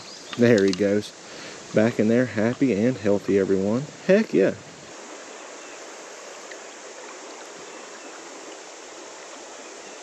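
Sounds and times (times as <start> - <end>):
creek water flowing: 0.0 - 10.0.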